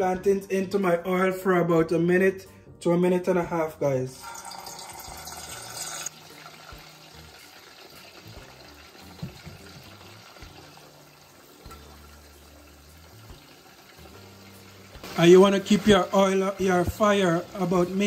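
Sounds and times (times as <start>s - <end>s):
plantain frying in hot oil: 4.2s - 18.0s.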